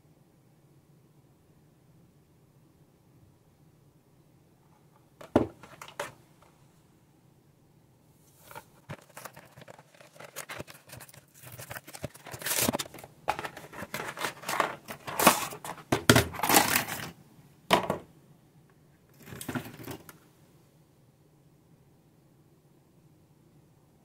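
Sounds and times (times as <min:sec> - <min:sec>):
paper rustling: 0:05.2 - 0:06.2, 0:08.3 - 0:17.2
cardboard and paper tearing: 0:08.4 - 0:15.7.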